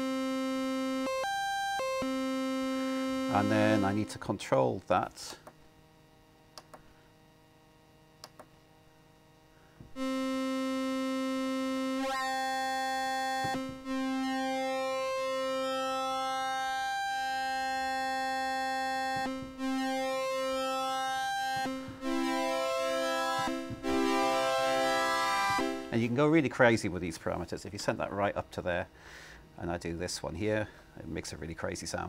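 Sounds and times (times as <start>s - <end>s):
synthesiser note with sweeping tone: 0.0s - 4.2s, 10.0s - 26.2s
faint clicks: 8.2s - 8.5s.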